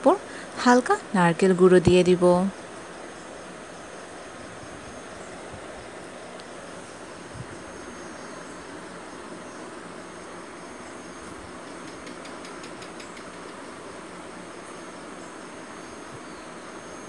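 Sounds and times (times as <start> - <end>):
insects chirping: 0.0 - 17.0
steady background hiss: 0.0 - 17.0.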